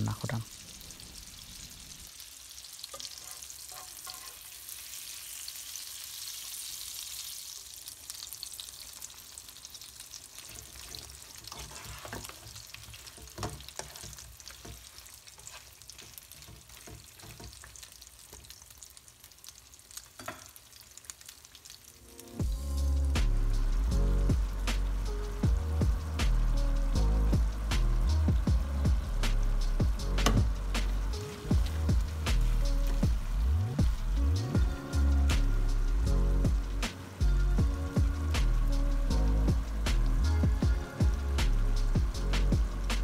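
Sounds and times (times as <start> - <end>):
food sizzling in frying pan: 0.0 - 43.0
stirring knocks against pan: 13.1 - 14.9.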